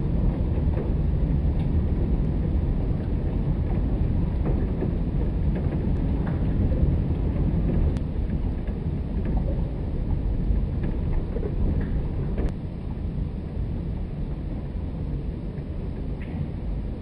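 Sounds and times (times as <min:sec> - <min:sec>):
rain ticks: 0:00.0 - 0:12.6
thunder rumble: 0:00.0 - 0:17.0.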